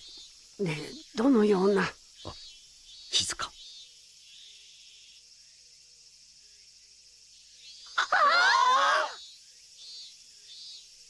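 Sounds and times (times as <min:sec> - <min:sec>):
high insect buzz: 0:00.0 - 0:11.0
voices shrieking: 0:07.9 - 0:09.2.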